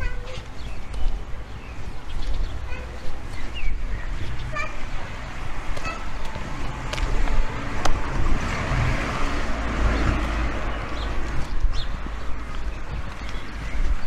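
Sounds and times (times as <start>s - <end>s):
vehicle passing by: 4.6s - 12.7s.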